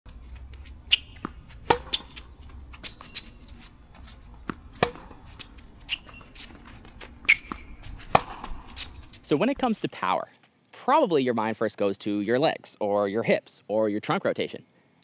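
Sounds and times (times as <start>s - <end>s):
tennis ball bounces: 0.2s - 9.2s
tennis balls struck with racquets: 0.3s - 9.2s.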